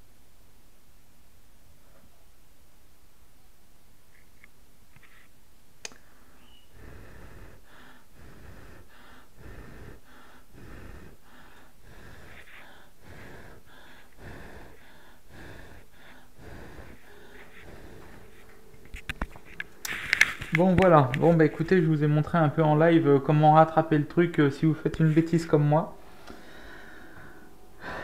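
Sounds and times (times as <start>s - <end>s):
person blowing puffs of breath: 5.9s - 20.6s, 25.9s - 28.0s.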